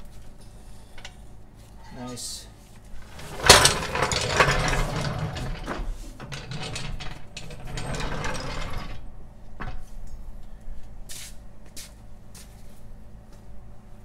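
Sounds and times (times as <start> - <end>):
floor jack rattling and clicking: 3.0 - 9.9.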